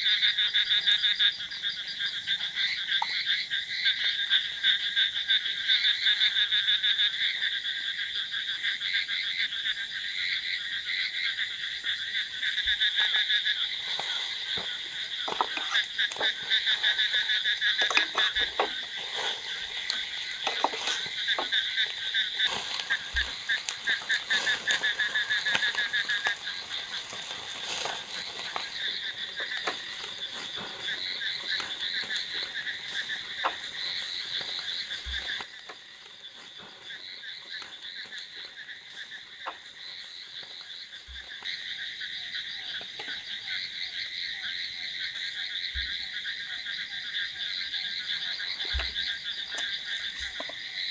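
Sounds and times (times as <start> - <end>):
frogs calling: 0.0 - 50.9
utensils tapping on grill: 17.8 - 21.6.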